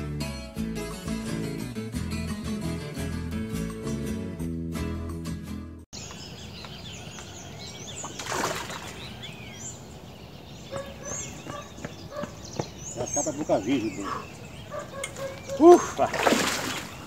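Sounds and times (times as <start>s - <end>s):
birds chirping and whistling: 6.0s - 17.0s.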